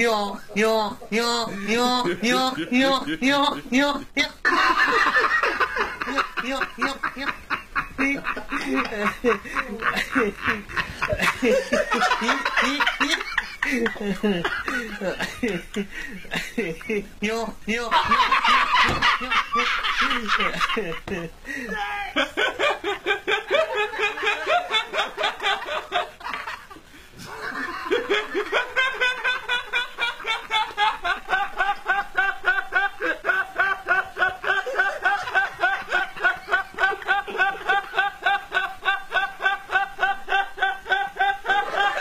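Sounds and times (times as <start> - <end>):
man laughing: 0.0 - 42.0.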